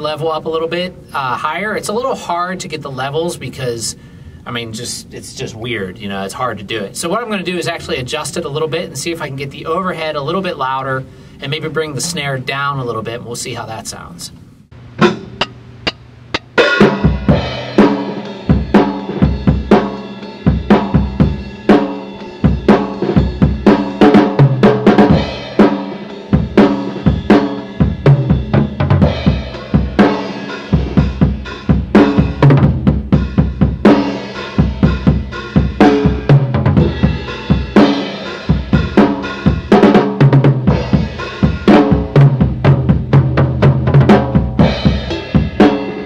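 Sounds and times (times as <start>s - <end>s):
drum kit groove: 11.4s - 14.0s, 14.7s - 46.0s.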